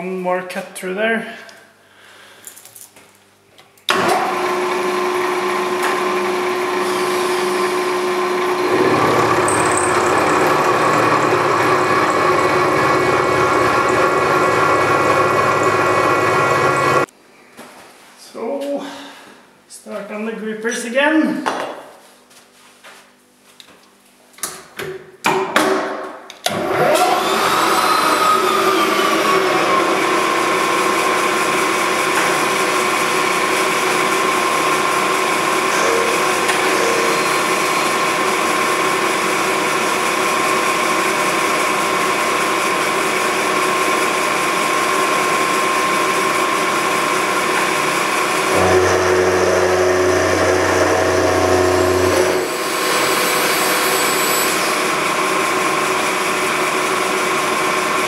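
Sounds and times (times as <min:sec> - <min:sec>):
milling machine spindle whining: 0:03.9 - 0:17.1, 0:26.6 - 0:55.9.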